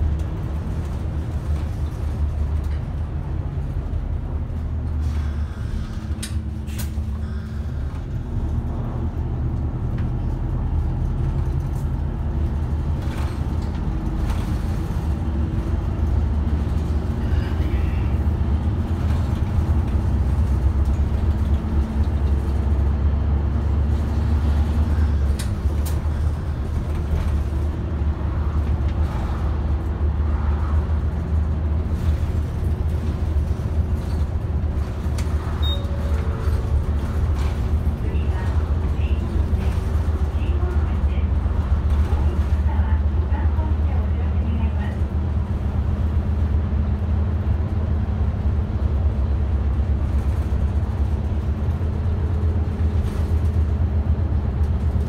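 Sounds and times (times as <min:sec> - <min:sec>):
diesel engine droning: 0:00.0 - 0:55.0
road noise: 0:00.0 - 0:55.0.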